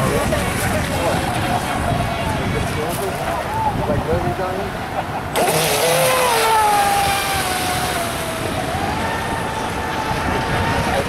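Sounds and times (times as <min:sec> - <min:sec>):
model boat motor whining: 0:05.2 - 0:11.0.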